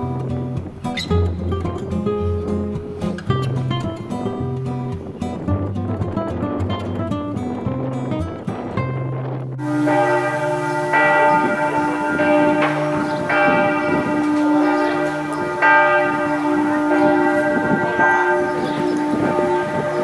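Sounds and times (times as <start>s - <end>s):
acoustic guitar music: 0.0s - 20.0s
church bells ringing: 9.6s - 20.0s.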